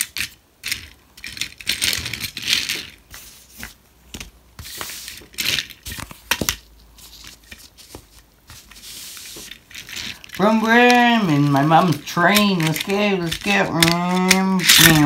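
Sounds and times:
plastic track pieces clicking: 0:00.0 - 0:03.0, 0:09.7 - 0:15.0
toy train wheels rattling: 0:09.7 - 0:15.0.

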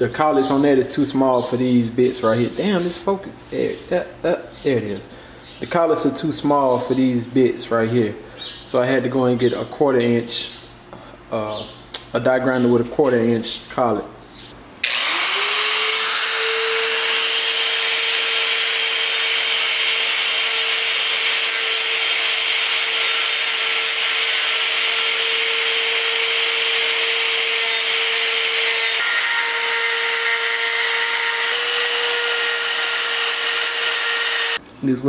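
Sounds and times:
die grinder whining on metal: 0:14.8 - 0:34.6.

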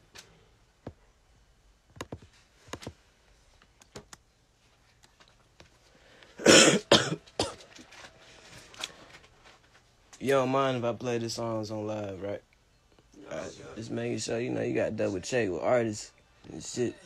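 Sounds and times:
faint taps and clicks: 0:01.9 - 0:03.0
person coughing: 0:06.4 - 0:07.7.

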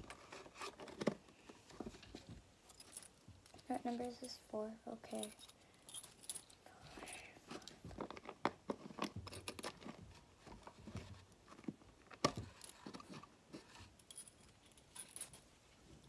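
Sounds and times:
keys jangling: 0:05.1 - 0:06.6, 0:14.0 - 0:15.5
keys clicking and scraping in lock: 0:05.1 - 0:07.8, 0:08.8 - 0:10.0, 0:12.4 - 0:15.5.

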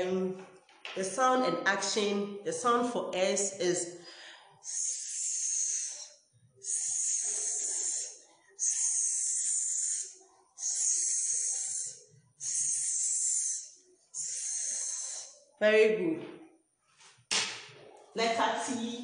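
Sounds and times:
woman hissing: 0:04.6 - 0:15.4.

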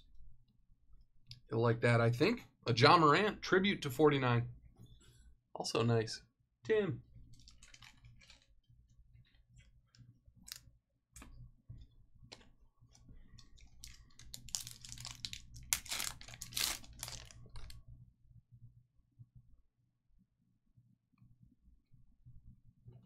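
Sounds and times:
foil wrapper tearing and crinkling: 0:07.4 - 0:08.5, 0:13.7 - 0:17.8.

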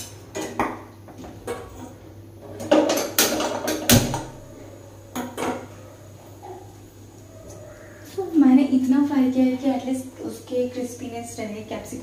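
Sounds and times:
cookware clattering and scraping: 0:00.0 - 0:03.9, 0:05.1 - 0:05.8.

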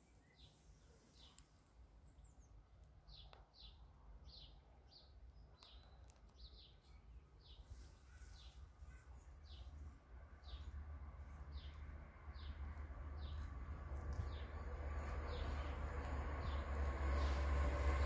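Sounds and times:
bird chirping: 0:00.0 - 0:10.8.

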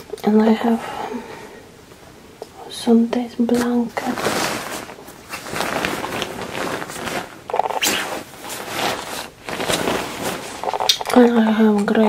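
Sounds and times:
fabric rustling and crinkling: 0:03.4 - 0:11.8.

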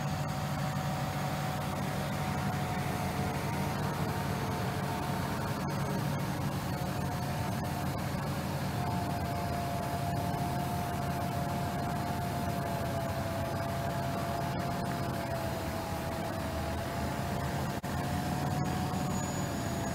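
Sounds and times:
heavy diesel machinery rumbling: 0:00.0 - 0:19.9
thin high whine: 0:00.0 - 0:19.9.

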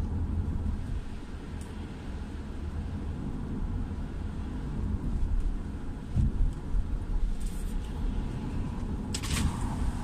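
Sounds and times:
car road noise on wet road: 0:00.0 - 0:10.0
passing vehicle spray rush: 0:07.6 - 0:10.0.

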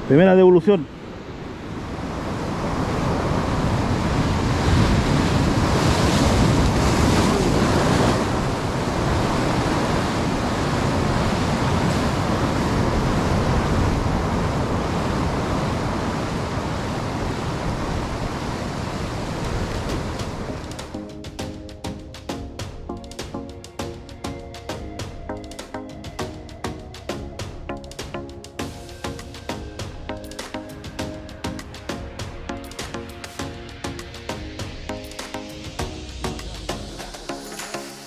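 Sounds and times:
surf on rocky shore: 0:00.0 - 0:38.0
wind on microphone: 0:01.3 - 0:20.8.

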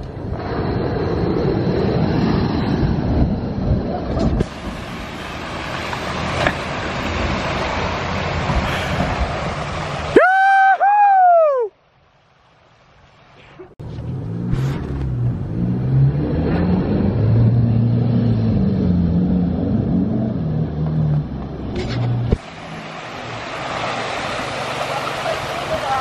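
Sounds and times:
mud and water splashing: 0:03.8 - 0:10.8, 0:11.7 - 0:26.0.

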